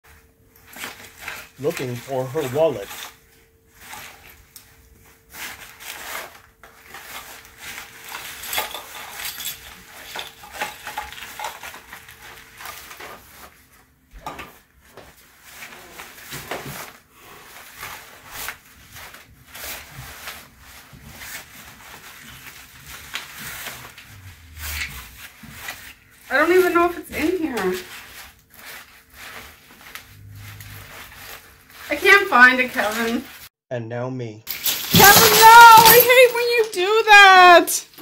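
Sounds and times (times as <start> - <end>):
small hard objects clinking: 7.0 - 12.4, 34.5 - 37.0.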